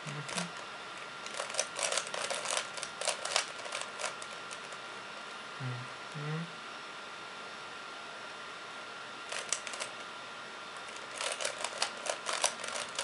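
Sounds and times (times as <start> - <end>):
puzzle cube clicking as turned: 1.2 - 4.7, 9.3 - 9.9, 10.9 - 13.0.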